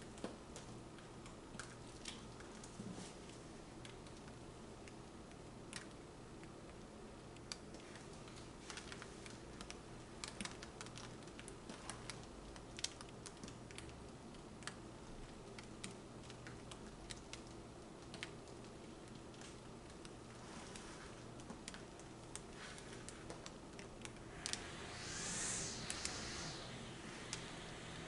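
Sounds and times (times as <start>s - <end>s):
low steady hum: 0.0s - 28.0s
paint dripping ticks: 3.8s - 20.2s.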